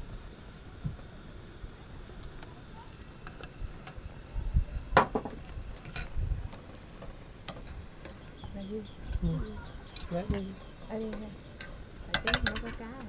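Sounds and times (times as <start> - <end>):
dishes and utensils clinking: 5.0 - 6.2, 9.3 - 12.9.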